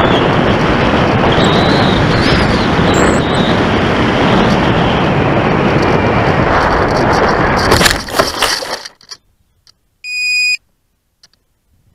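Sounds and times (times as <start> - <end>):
rushing airflow: 0.0 - 8.7
electronic beep: 2.9 - 3.3, 10.0 - 10.6.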